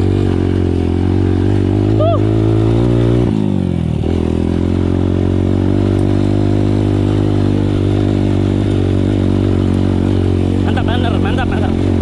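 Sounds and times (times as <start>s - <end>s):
dirt bike engine running: 0.0s - 12.0s.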